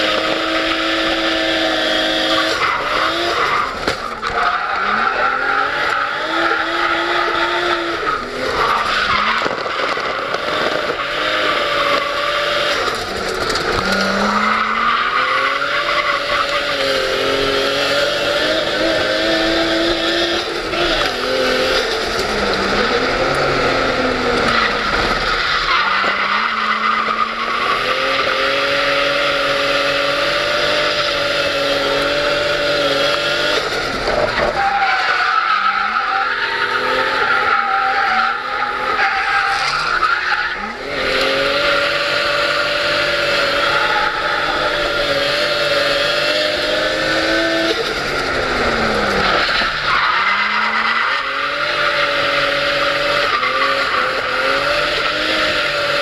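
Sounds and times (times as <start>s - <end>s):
car engine revving: 0.0s - 56.0s.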